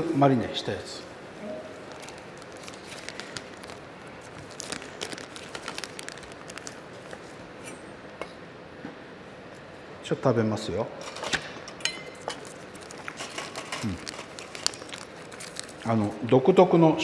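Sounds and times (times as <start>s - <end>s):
room hiss: 0.0s - 11.0s.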